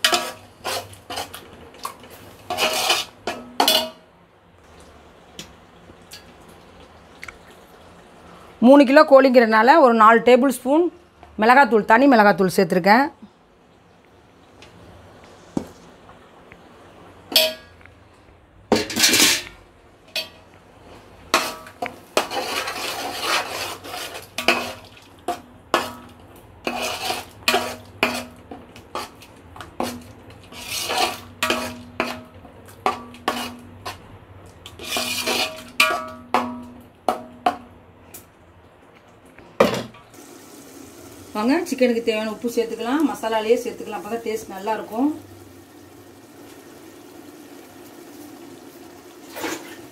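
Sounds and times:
ladle scraping metal pot: 0:00.0 - 0:01.5, 0:02.3 - 0:04.0, 0:21.3 - 0:29.2, 0:29.8 - 0:34.0, 0:34.6 - 0:36.2.

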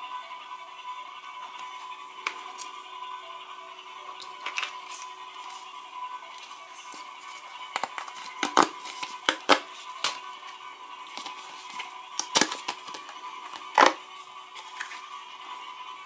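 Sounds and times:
paper crackles and snaps: 0:07.7 - 0:10.2, 0:11.1 - 0:14.0
paper packet tearing: 0:11.1 - 0:14.0.

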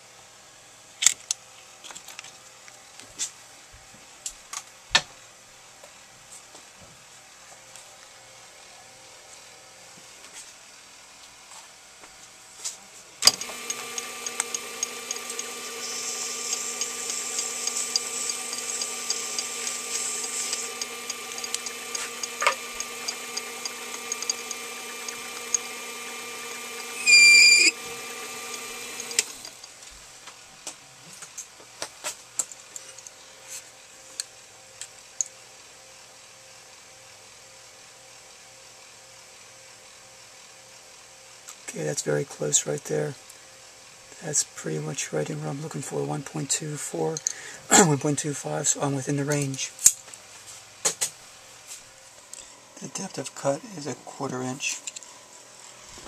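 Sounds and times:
metal lathe whining: 0:13.2 - 0:29.6
shrill squeal: 0:27.0 - 0:27.8.

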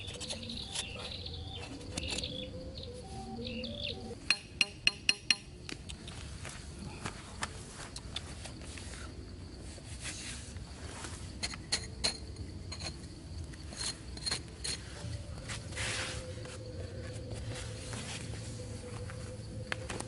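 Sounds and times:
hands scraping dry sandy soil: 0:07.5 - 0:11.4, 0:14.8 - 0:16.6.

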